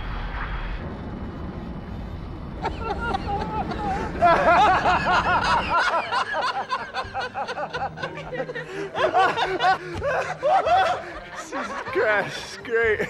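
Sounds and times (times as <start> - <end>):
man cackling loudly: 2.6 - 12.3.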